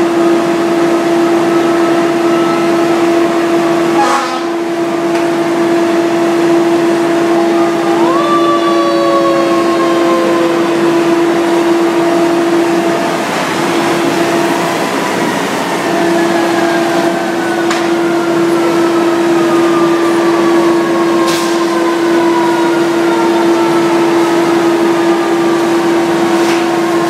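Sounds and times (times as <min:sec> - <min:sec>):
fire engine running: 0:00.0 - 0:27.0.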